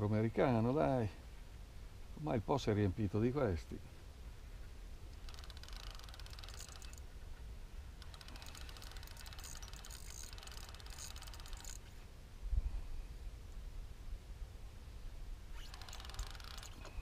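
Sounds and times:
fishing reel gears ticking: 0:05.2 - 0:07.1, 0:08.0 - 0:11.8, 0:15.5 - 0:17.0.

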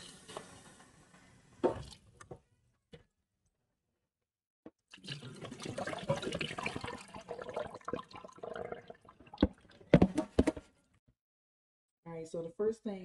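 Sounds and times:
water pouring into sink: 0:04.9 - 0:10.1.

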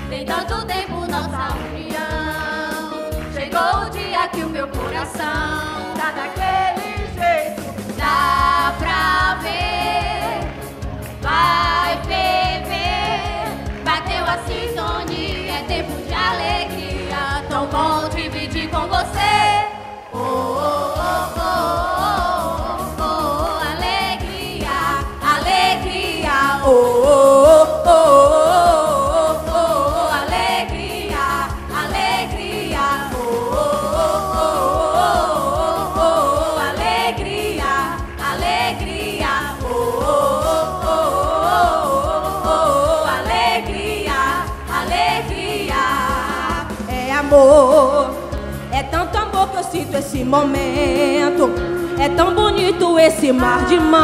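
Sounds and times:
youth choir singing pop song: 0:00.0 - 0:54.0.

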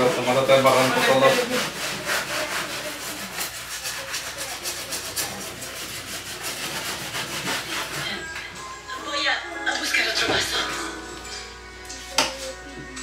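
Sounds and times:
paper towel scrubbing metal: 0:00.0 - 0:08.2.

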